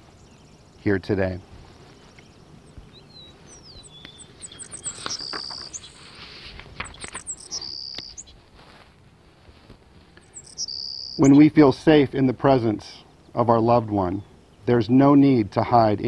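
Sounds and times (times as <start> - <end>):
birds chirping: 0.0 - 8.5, 10.0 - 16.0
high trilled bird notes: 3.0 - 6.1, 6.8 - 8.4, 10.2 - 11.5.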